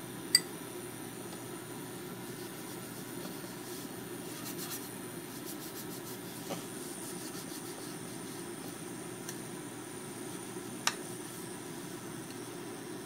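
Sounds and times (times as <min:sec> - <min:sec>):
paper towel rubbing a pan: 0:02.2 - 0:08.9.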